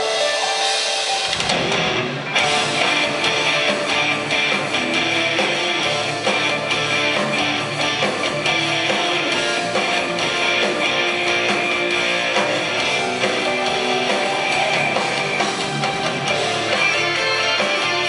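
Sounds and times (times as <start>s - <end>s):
live hard rock band: 0.0s - 18.0s.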